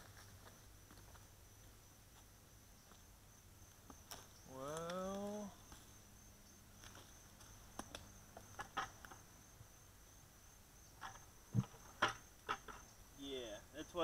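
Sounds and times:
rustling in dry leaves: 0:00.0 - 0:01.7
crickets chirring: 0:00.0 - 0:14.0.

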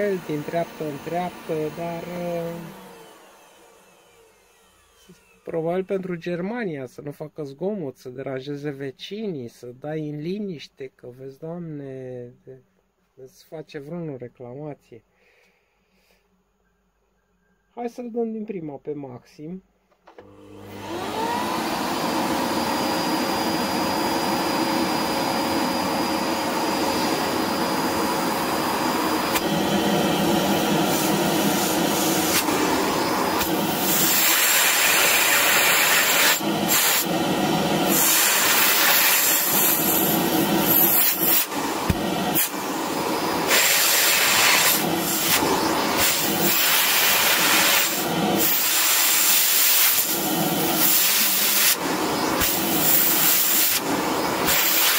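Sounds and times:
vacuum cleaner running: 0:00.0 - 0:05.6, 0:20.1 - 0:54.9.

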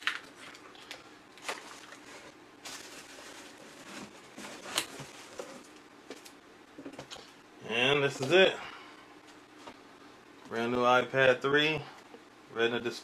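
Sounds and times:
cardboard packaging rustling: 0:01.4 - 0:06.3.

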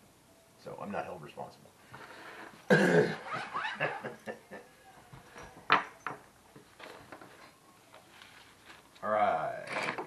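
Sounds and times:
man laughing: 0:03.6 - 0:04.7.

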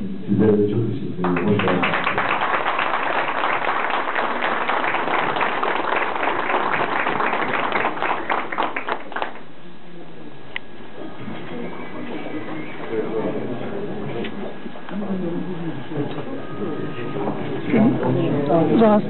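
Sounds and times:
audience applauding: 0:01.2 - 0:09.5.

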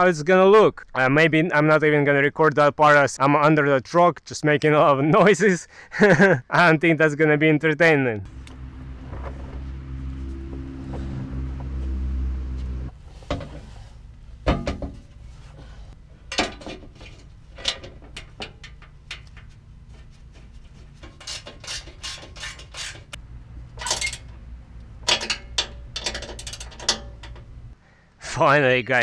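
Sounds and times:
steady low hum: 0:08.3 - 0:27.8.

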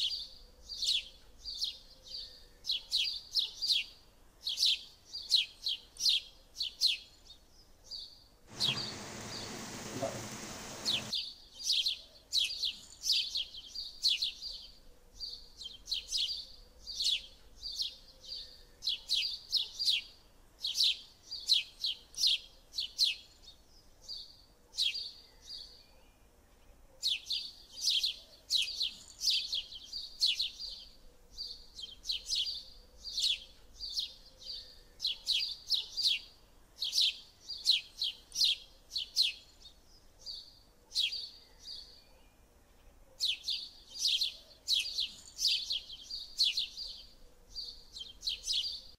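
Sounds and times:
birds chirping: 0:08.5 - 0:11.1
hiss: 0:08.5 - 0:11.1.

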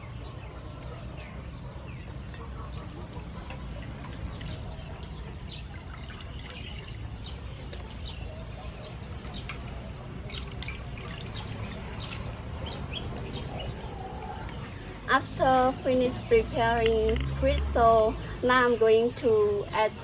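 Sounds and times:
water splashes and drips: 0:02.3 - 0:08.1, 0:09.4 - 0:13.3.

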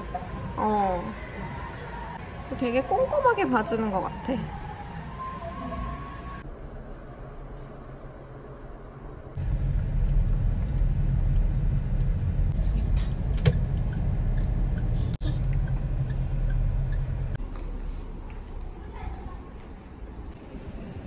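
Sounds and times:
road and engine rumble in car: 0:09.3 - 0:17.5.

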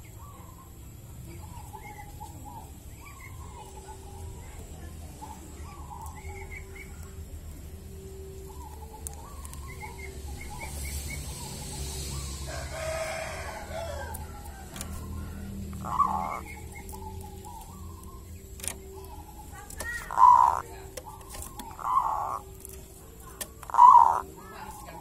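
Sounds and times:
small birds chirping: 0:00.0 - 0:25.0
rooster crowing: 0:12.0 - 0:16.6.

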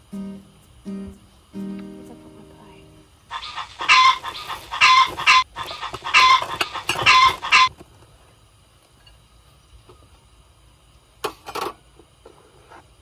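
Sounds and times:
hen clucking: 0:03.3 - 0:07.7.

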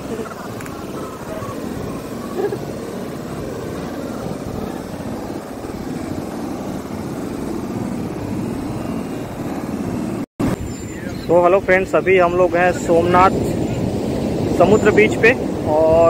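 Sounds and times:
wind rumbling on microphone: 0:00.0 - 0:16.0
sea surf breaking on sand: 0:11.3 - 0:16.0.

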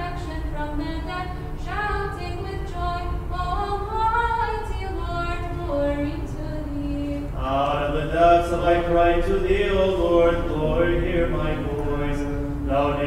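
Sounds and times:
woman chanting: 0:00.0 - 0:07.4.

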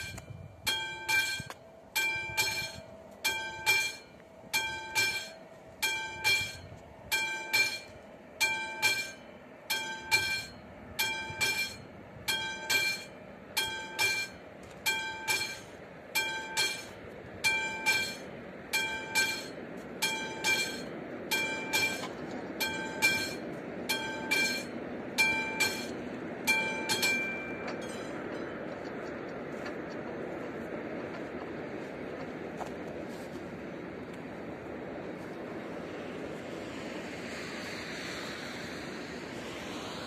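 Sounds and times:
level crossing warning bell: 0:00.0 - 0:31.4
approaching train rumble: 0:00.0 - 0:40.0.

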